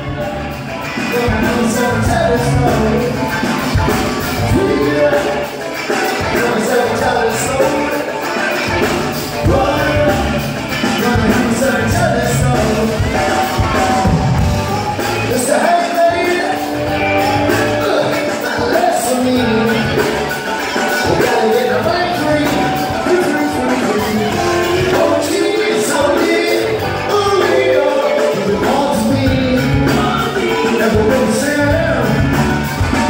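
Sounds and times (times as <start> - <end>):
people singing: 0.0 - 3.7, 4.3 - 14.1, 15.1 - 32.4
live reggae band playing: 0.0 - 33.0.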